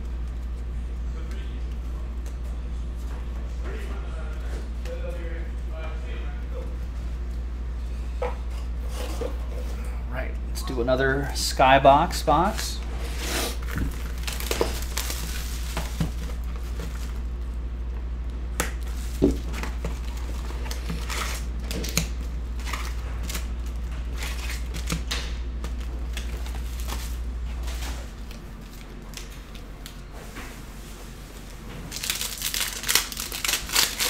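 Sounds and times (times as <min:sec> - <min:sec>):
card packs crinkling and tapping: 0:13.6 - 0:17.4, 0:18.6 - 0:30.0, 0:31.9 - 0:34.0.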